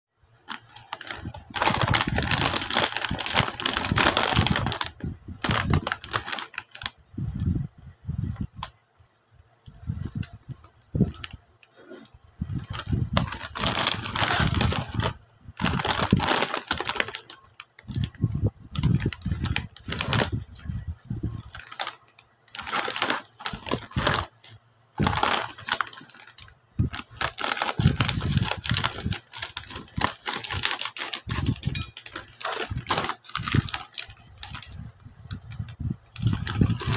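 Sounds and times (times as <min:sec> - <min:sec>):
plastic snack bag crinkling: 0:00.4 - 0:07.0, 0:10.0 - 0:35.4, 0:36.0 - 0:36.9.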